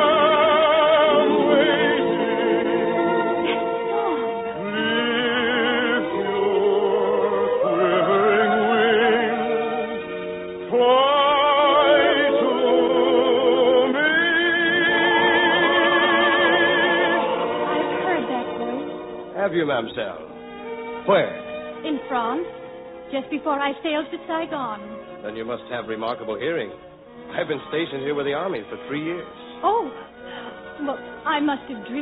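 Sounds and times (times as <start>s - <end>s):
operatic singing with orchestra: 0.0s - 18.5s.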